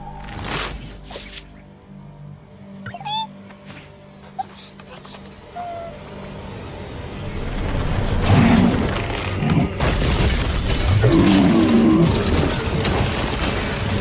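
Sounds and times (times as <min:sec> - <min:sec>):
dramatic music: 0:00.0 - 0:14.0
rock breaking with heavy booms: 0:09.8 - 0:11.3
crystal spikes shattering: 0:09.8 - 0:14.0
monster growling and roaring: 0:11.0 - 0:12.6.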